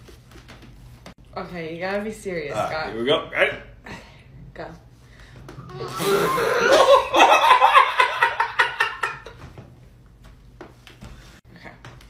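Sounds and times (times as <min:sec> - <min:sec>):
woman laughing hard: 0:05.7 - 0:09.4.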